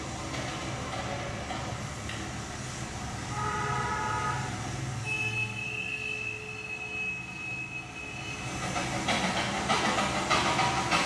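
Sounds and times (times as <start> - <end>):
low rumble of moving train: 0.0 - 11.0
train wheels squealing: 5.0 - 9.2.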